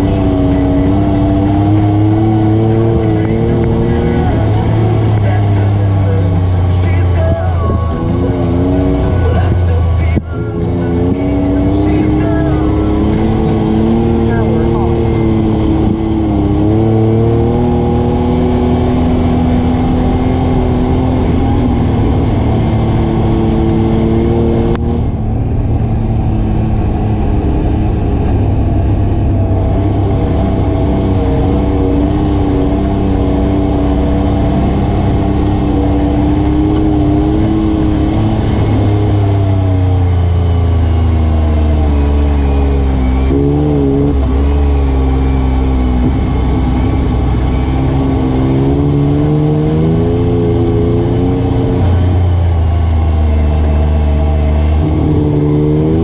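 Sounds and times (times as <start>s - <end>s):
atv engine running: 0.0s - 56.0s.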